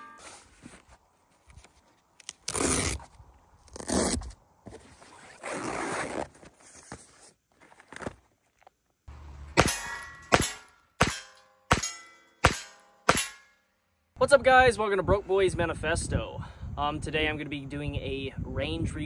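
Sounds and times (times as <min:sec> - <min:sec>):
steel target clanging: 0:09.5 - 0:13.7
rifle shots: 0:09.6 - 0:13.4.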